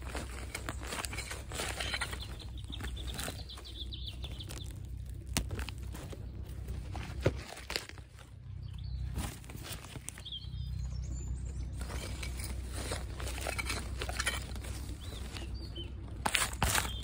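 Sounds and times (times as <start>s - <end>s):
hand tool scraping soil: 0.0s - 8.0s, 11.7s - 17.0s.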